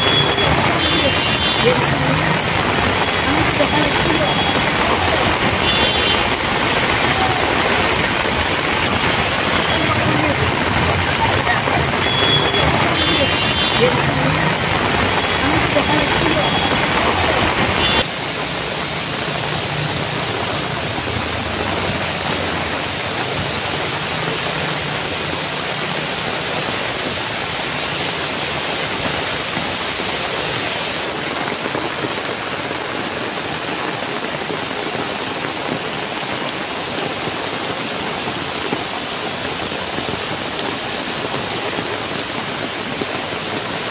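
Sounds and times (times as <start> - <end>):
floodwater running: 0.0 - 43.9
heavy rain pouring: 0.0 - 43.9.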